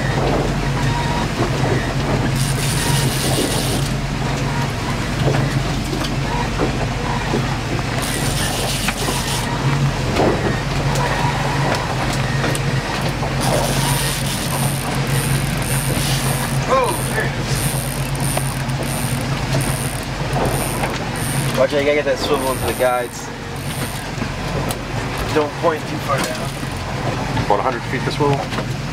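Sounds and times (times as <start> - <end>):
boat engine humming: 0.0 - 28.9
fishing reel cranking: 2.4 - 3.9, 8.0 - 9.5, 13.4 - 24.2.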